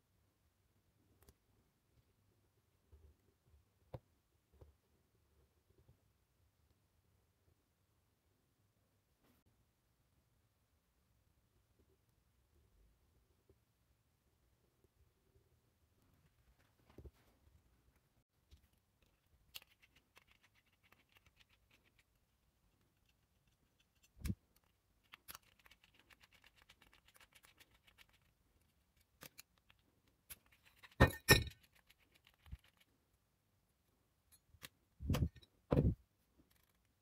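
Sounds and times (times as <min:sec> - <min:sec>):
metal parts clicking and knocking: 0:30.3 - 0:32.8.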